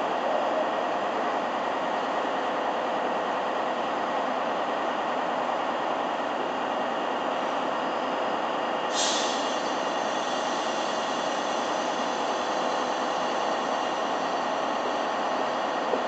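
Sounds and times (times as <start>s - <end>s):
diesel locomotive engine running: 0.0s - 16.0s
compressed air hissing: 8.9s - 11.2s.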